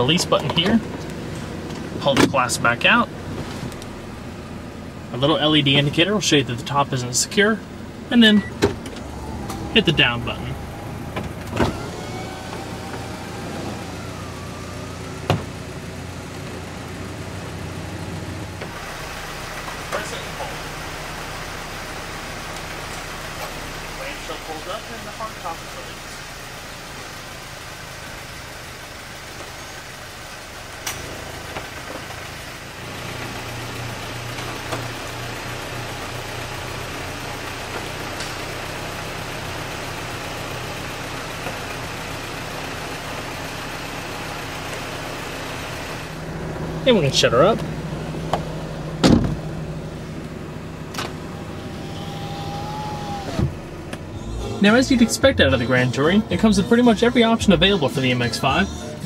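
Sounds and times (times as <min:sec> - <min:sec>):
power window motor whine: 0:08.6 - 0:10.0, 0:10.6 - 0:15.7, 0:50.9 - 0:54.2
deck lid clunk: 0:15.2 - 0:15.6, 0:48.3 - 0:49.5
roof motor hum: 0:44.0 - 0:57.9
window glass thump: 0:49.0 - 0:49.4.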